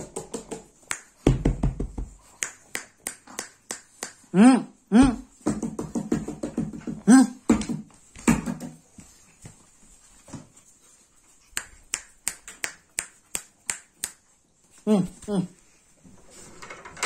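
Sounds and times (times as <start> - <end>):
dogs scuffling on tiles: 7.6 - 12.6.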